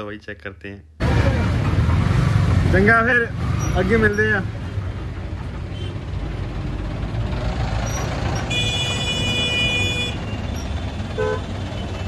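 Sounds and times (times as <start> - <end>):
traffic engines rumbling: 0.0 - 12.0
vehicle horn: 8.5 - 10.3, 11.2 - 11.5.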